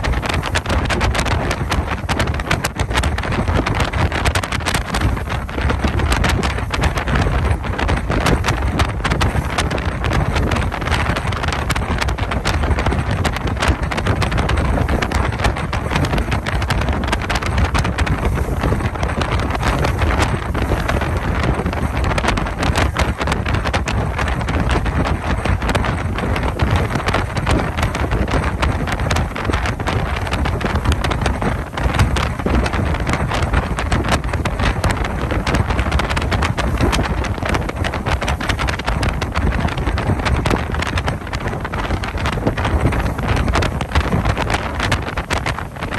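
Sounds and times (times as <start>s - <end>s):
boat rushing through water: 0.0s - 45.9s
wind buffeting microphone: 0.0s - 45.9s.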